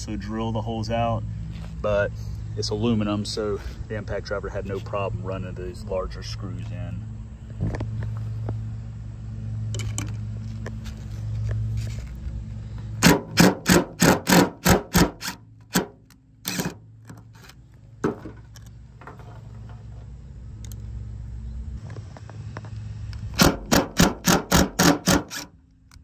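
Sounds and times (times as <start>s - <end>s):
impact driver hammering screw: 13.0s - 16.8s, 23.4s - 25.5s.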